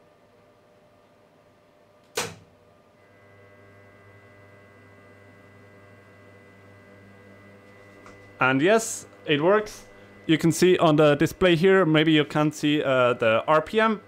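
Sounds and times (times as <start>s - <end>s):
low hum of cooling fans: 0.0s - 14.0s
spindle switch click: 2.1s - 2.5s
spindle motor whine: 3.0s - 14.0s.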